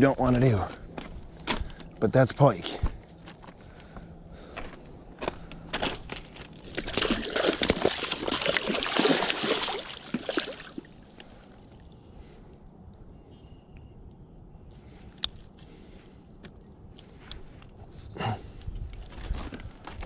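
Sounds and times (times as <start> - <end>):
fish thrashing and splashing in water: 6.6 - 11.9.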